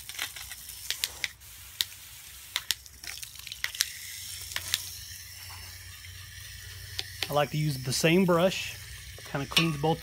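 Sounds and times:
hose spray hissing onto metal: 0.0 - 10.0.

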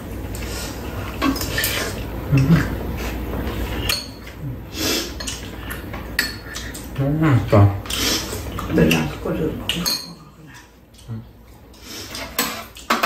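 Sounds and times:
utensils clinking against bowls: 1.1 - 2.7, 3.7 - 4.4, 5.1 - 7.0, 7.8 - 11.1, 12.0 - 13.0.

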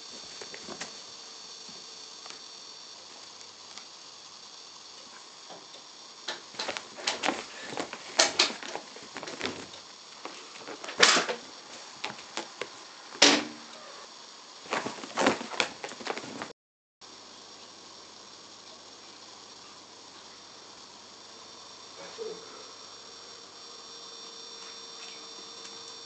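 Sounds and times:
kitten claws scratching fabric: 6.5 - 10.9, 14.6 - 16.5.

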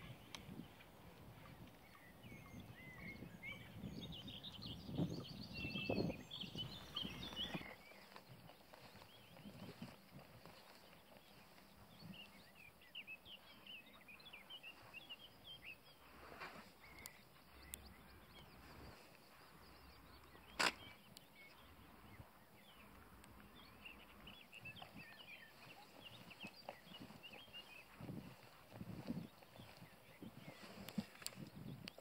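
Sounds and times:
small birds twittering: 0.0 - 32.0
sharp click: 20.5 - 21.0.

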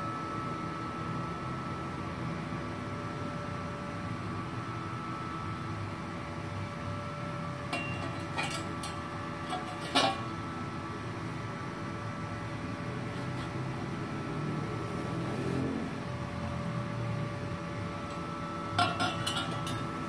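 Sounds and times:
steady hum: 0.0 - 20.0
metal tube clinks and knocks: 7.7 - 10.3, 18.8 - 19.9.

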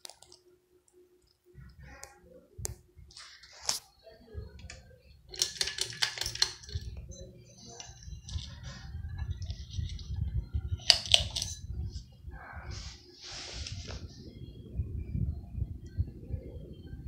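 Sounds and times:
ceiling fan clicks and rattles: 0.0 - 12.3
ceiling fan motor hum: 0.0 - 17.0
low rumble: 13.6 - 17.0.

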